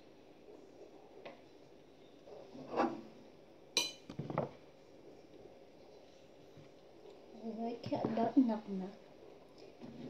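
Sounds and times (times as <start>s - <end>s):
metallic clink of pan: 3.8s - 4.1s.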